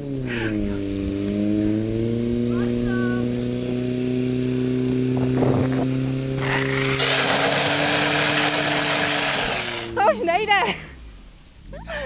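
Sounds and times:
pump engine running: 0:06.4 - 0:10.0
water jets spraying from hoses: 0:06.4 - 0:10.0.

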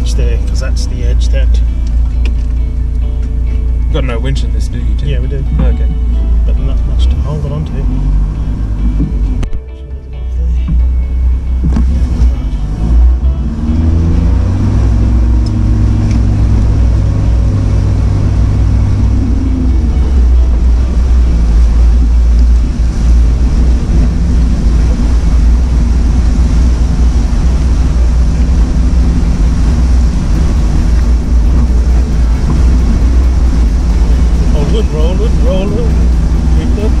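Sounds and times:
engine running under load: 0:00.0 - 0:37.0.

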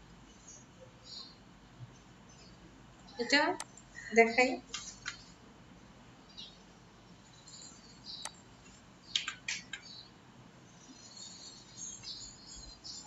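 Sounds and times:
faint high chirping: 0:00.3 - 0:05.4, 0:06.3 - 0:13.0
computer mouse clicks: 0:09.1 - 0:10.0.

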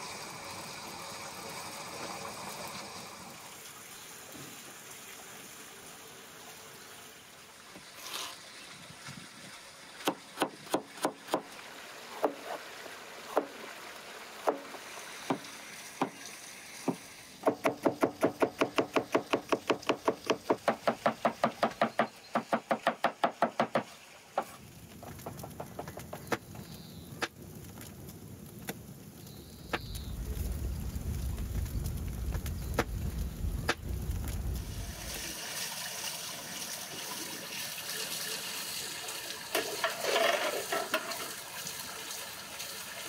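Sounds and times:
cleaver chopping on wooden board: 0:16.9 - 0:24.5
wood fire crackling: 0:24.4 - 0:37.6
low rumble: 0:29.8 - 0:35.1.

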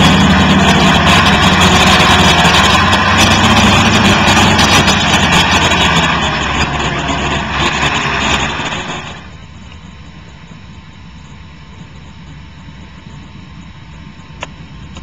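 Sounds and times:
truck engine driving away: 0:00.0 - 0:09.4.

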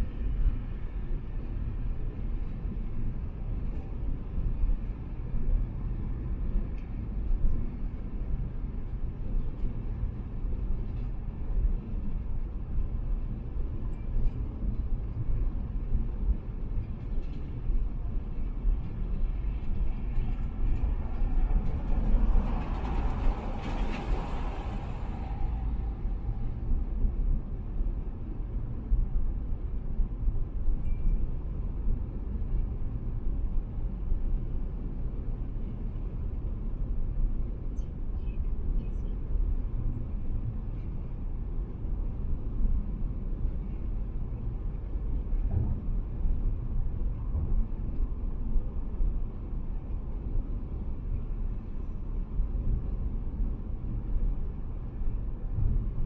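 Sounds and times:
tyres rumbling on road: 0:20.1 - 0:27.7.

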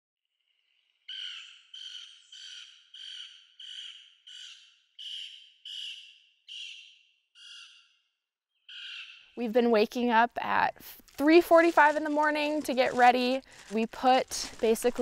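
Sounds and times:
woodpecker harsh churr calls: 0:00.4 - 0:09.4.

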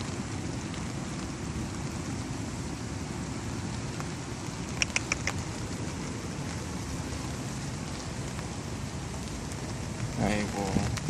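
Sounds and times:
rain pattering on umbrella: 0:00.0 - 0:11.0
sharp ticks: 0:04.7 - 0:05.5.

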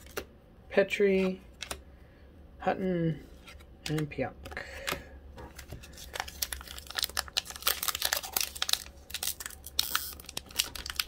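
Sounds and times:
foil wrapper crinkling: 0:05.6 - 0:11.0.

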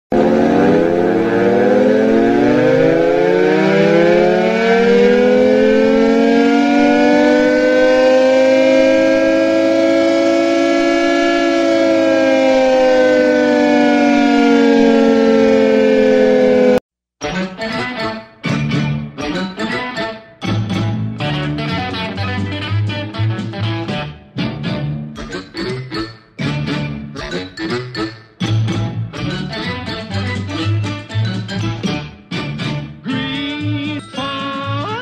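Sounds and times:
mechanical siren wailing: 0:00.1 - 0:16.8.

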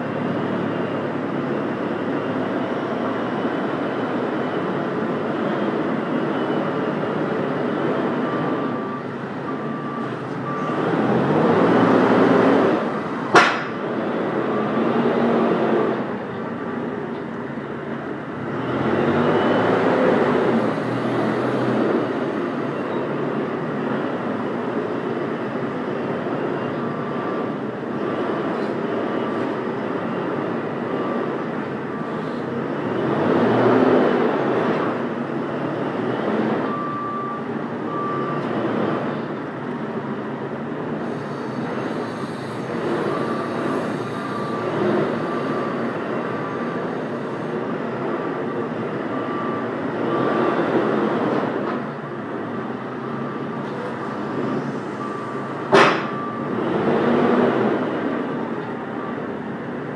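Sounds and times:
diesel engine revving: 0:00.0 - 0:17.0, 0:17.6 - 0:59.9
reversing alarm short beeps: 0:07.6 - 0:12.1, 0:36.6 - 0:38.5, 0:41.0 - 0:47.5, 0:48.4 - 0:51.8, 0:53.1 - 0:56.8.

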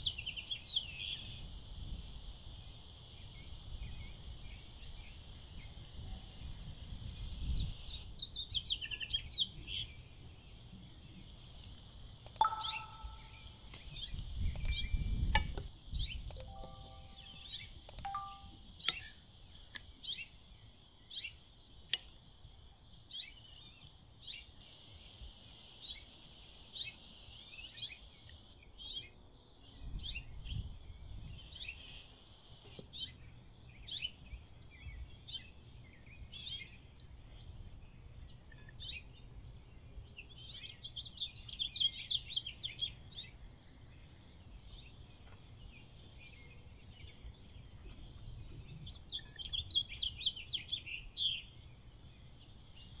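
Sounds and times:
songbirds chirping: 0:00.0 - 0:53.0
rapid bird trills: 0:12.3 - 0:14.0.

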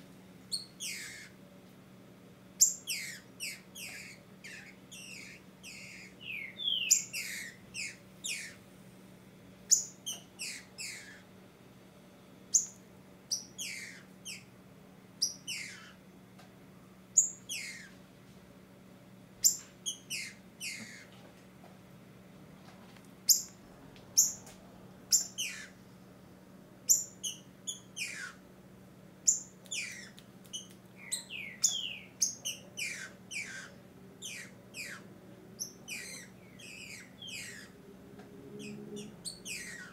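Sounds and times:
bird high downward calls: 0:00.5 - 0:01.4, 0:02.6 - 0:08.6, 0:09.7 - 0:11.3, 0:12.5 - 0:14.5, 0:15.2 - 0:16.0, 0:17.2 - 0:18.0, 0:19.4 - 0:21.1, 0:25.1 - 0:25.8, 0:26.9 - 0:28.4, 0:29.2 - 0:37.8, 0:38.5 - 0:39.9.

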